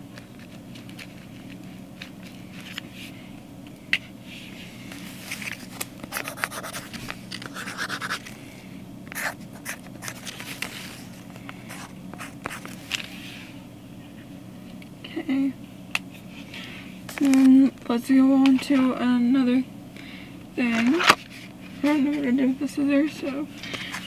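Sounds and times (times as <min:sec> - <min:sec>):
low steady hum: 0:00.0 - 0:24.0
marker scratching on paper: 0:06.1 - 0:06.9, 0:07.5 - 0:08.2.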